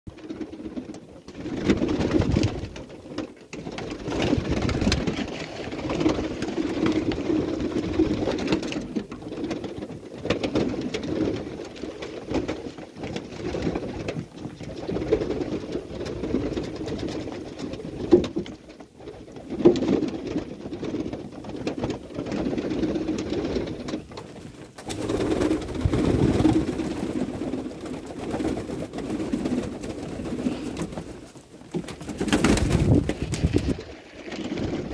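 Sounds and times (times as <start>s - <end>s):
wing flaps: 0.2s - 3.0s, 3.6s - 9.7s, 22.4s - 34.9s
pigeons pecking taps: 0.2s - 34.9s
pigeons cooing: 24.8s - 33.9s.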